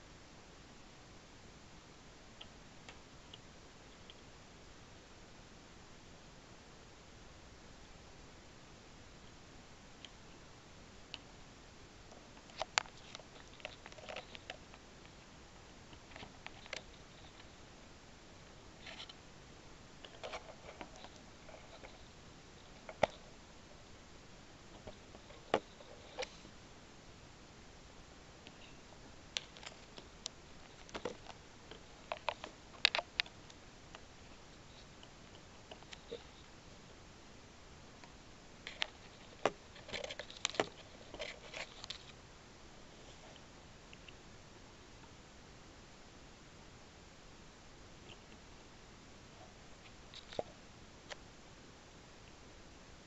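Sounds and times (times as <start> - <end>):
handling clicks and rustles: 12.0 - 17.6, 20.0 - 24.0, 24.6 - 26.6, 28.4 - 36.6, 38.0 - 42.2.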